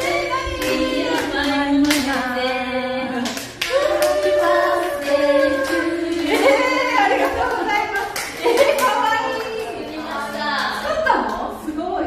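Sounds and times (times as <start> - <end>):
women singing together: 0.0 - 12.0
hand claps: 5.5 - 9.9.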